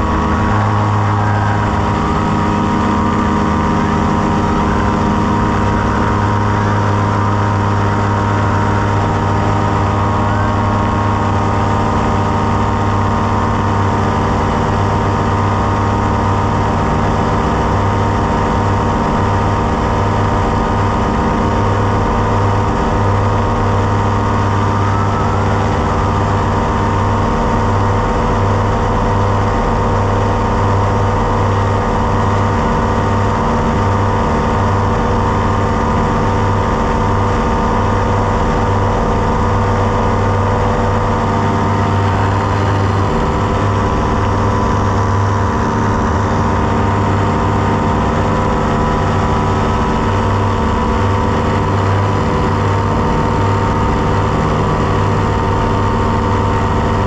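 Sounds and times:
paramotor engine droning: 0.0 - 57.0.

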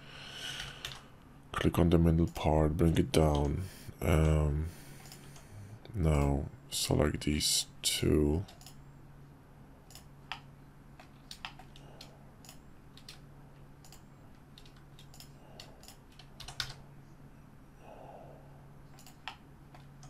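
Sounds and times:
keyboard and mouse clicks: 0.6 - 1.1, 2.2 - 3.6, 9.9 - 13.2, 13.8 - 16.8, 18.9 - 20.0.

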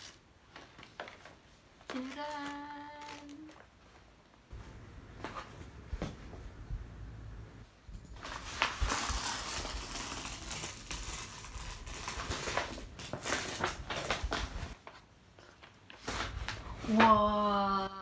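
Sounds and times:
wrapping paper tearing and crinkling: 0.0 - 3.7, 8.2 - 15.0.

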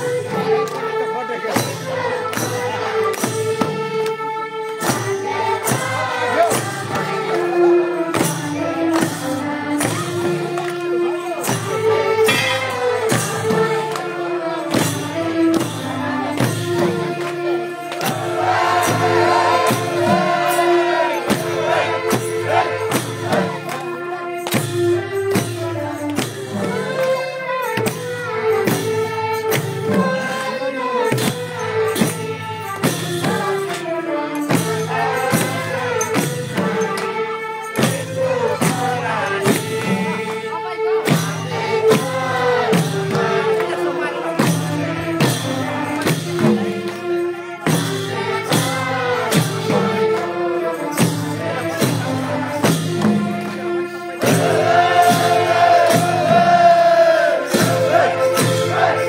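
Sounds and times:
group singing: 0.0 - 10.8, 11.5 - 24.2, 32.9 - 47.0, 47.7 - 59.0
hand drums beating: 4.8 - 27.2, 54.2 - 59.0.

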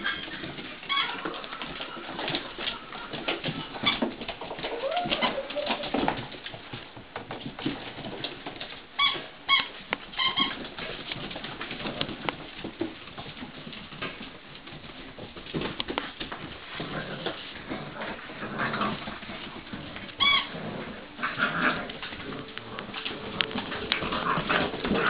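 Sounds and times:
puppy whine: 0.0 - 6.2, 16.9 - 25.0
dog claws clicking on floor: 0.0 - 25.0
squeaky toy squeaking: 20.2 - 20.6.

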